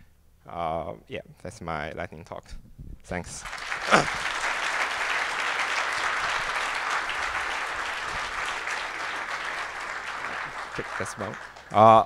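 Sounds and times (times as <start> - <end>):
audience applauding: 3.4 - 12.0.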